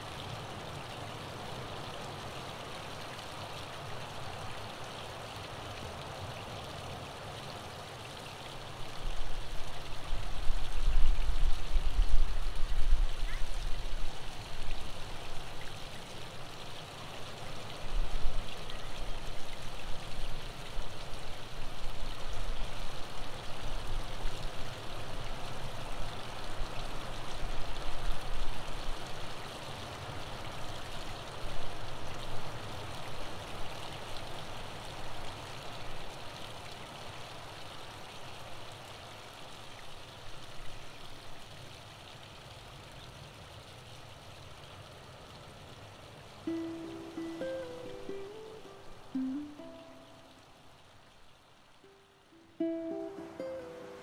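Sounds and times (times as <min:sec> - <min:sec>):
waterfall rushing: 0:46.4 - 0:50.8, 0:51.8 - 0:54.0.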